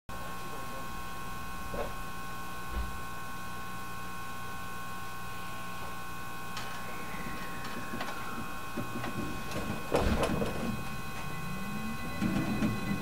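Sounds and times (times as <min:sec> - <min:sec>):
electric train inverter whine rising: 0:00.1 - 0:13.0
train equipment hum: 0:00.8 - 0:13.0
loud clunk: 0:08.8 - 0:10.8.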